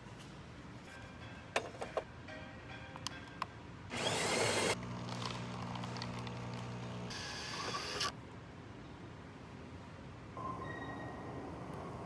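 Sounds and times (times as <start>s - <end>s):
pump humming: 3.9s - 8.1s.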